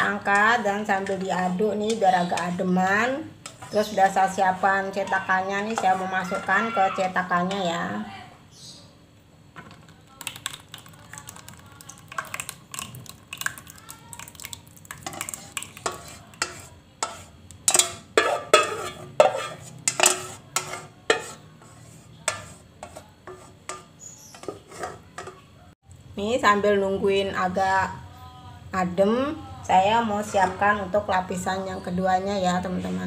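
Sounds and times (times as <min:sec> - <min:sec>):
paddle scraping a steel saucepan: 0:03.4 - 0:06.6, 0:15.0 - 0:25.4.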